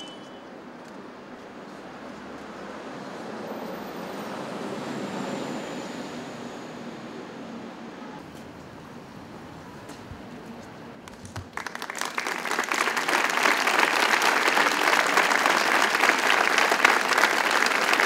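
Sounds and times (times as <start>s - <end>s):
crowd applauding: 11.2s - 18.0s.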